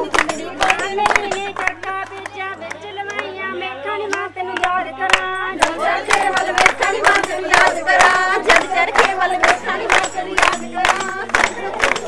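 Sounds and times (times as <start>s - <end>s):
hand clapping: 0.0s - 3.4s, 4.1s - 12.0s
women singing and calling out: 0.0s - 12.0s.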